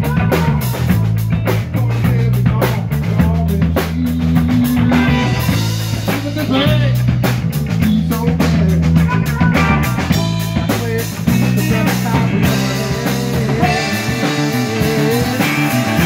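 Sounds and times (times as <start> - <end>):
drum kit beats: 0.0 - 16.0
electric guitar: 0.0 - 16.0
rock band playing: 0.0 - 16.0
wavering lead guitar note: 3.8 - 6.1, 11.6 - 16.0.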